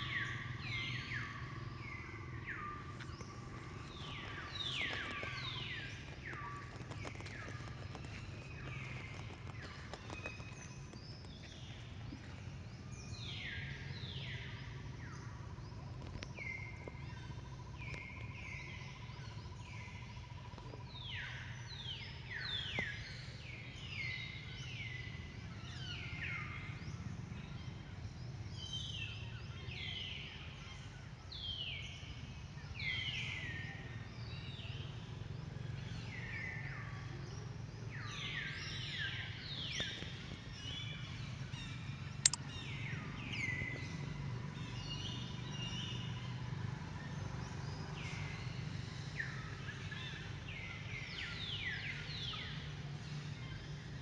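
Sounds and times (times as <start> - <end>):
birds calling: 0.0 - 21.6, 37.9 - 46.5
low background rumble: 0.0 - 28.7
sharp click: 42.2 - 42.4.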